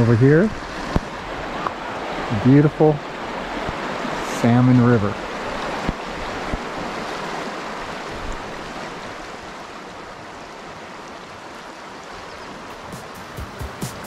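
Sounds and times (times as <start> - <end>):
river rushing over rocks: 0.0 - 14.0
music with a beat: 12.8 - 14.0.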